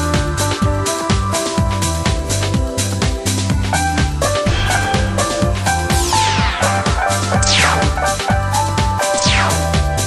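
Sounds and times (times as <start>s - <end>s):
upbeat electronic music: 4.6s - 8.5s, 9.2s - 9.9s.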